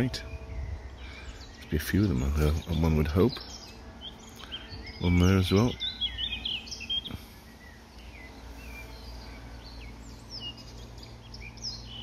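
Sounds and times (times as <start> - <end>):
birds chirping and whistling: 0.0 - 12.0
low outdoor rumble: 0.0 - 12.0.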